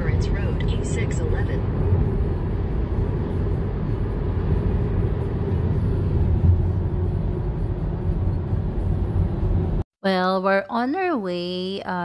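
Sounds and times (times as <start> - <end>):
car road and engine rumble: 0.0 - 9.9.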